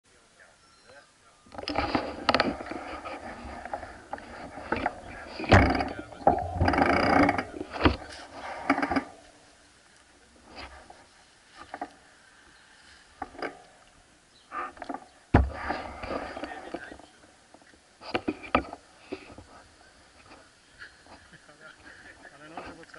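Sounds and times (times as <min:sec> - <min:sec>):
indistinct voices: 0:00.4 - 0:09.2
bike clicks and knocks: 0:01.6 - 0:09.1, 0:13.2 - 0:13.6.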